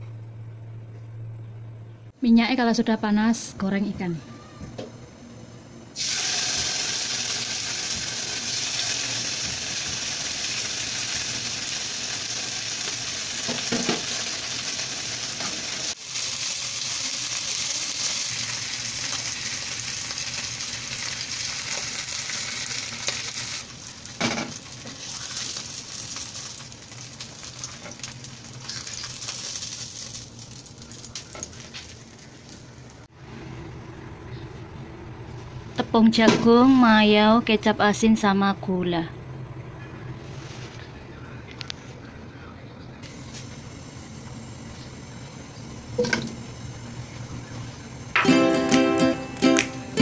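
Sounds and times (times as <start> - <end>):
fish sizzling in hot oil: 6.0 - 32.2.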